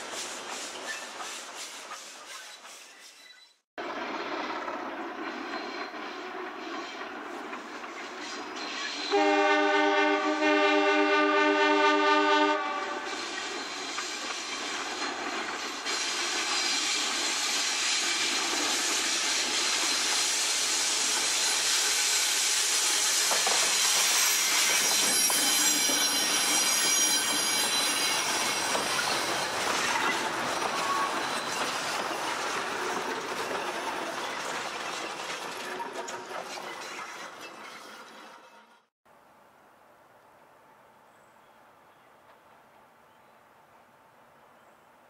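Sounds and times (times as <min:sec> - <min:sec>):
wheels clattering over rail joints: 0:23.2 - 0:38.8
high-pitched wheel squeal: 0:23.3 - 0:31.6.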